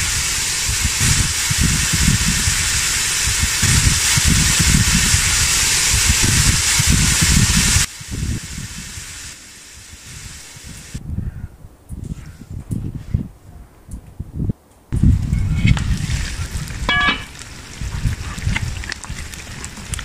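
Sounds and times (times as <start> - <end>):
meat sizzling in oil: 0.0 - 11.0, 15.0 - 20.0
quiet outdoor background: 7.9 - 20.0
irregular low rumble: 14.9 - 20.0
metal skimmer stirring: 15.0 - 20.0.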